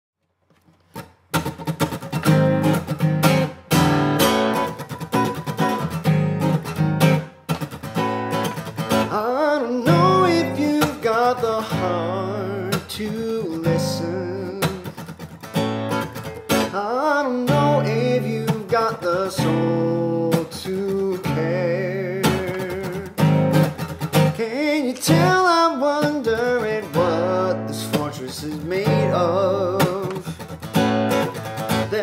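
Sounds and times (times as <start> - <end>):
acoustic guitar strumming: 0.5 - 32.0
man singing: 8.9 - 15.1, 16.6 - 23.4, 24.2 - 30.5, 31.6 - 32.0.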